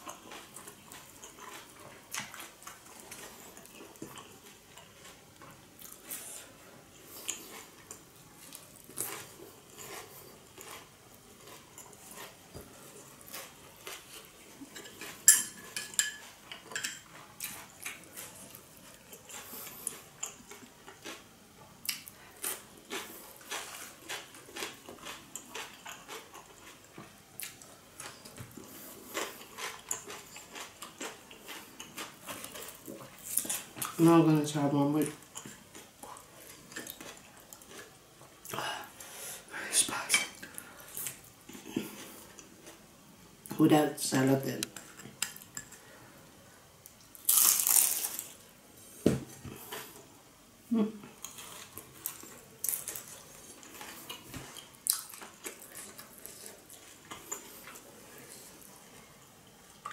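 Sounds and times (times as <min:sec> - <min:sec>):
chewing with crunches: 0:00.0 - 0:34.0, 0:35.0 - 0:39.1, 0:51.1 - 0:59.9.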